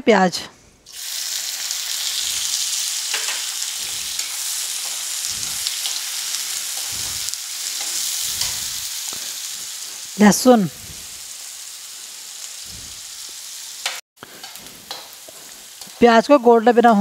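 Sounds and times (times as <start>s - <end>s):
onions sizzling in hot oil: 0.9s - 17.0s.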